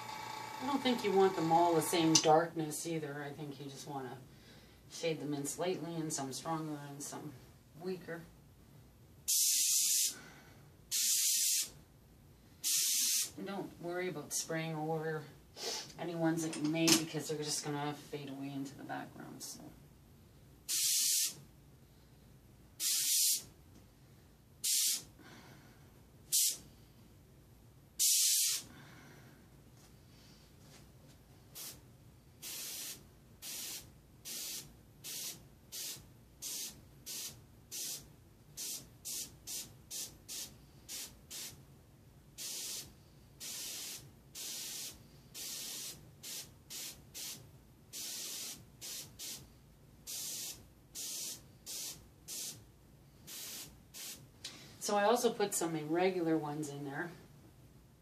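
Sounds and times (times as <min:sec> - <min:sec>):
airbrush spraying hissing bursts: 0:09.3 - 0:10.2, 0:10.9 - 0:11.7, 0:12.6 - 0:13.4, 0:20.7 - 0:21.4, 0:22.8 - 0:23.5, 0:24.6 - 0:25.1, 0:26.3 - 0:26.6, 0:28.0 - 0:28.7, 0:31.6 - 0:31.8, 0:32.4 - 0:41.6, 0:42.4 - 0:49.4, 0:50.1 - 0:52.6, 0:53.2 - 0:54.2.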